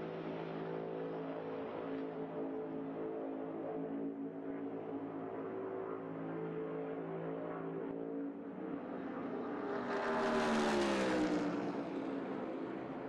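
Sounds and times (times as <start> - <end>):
race car engines passing by: 8.5 - 13.0.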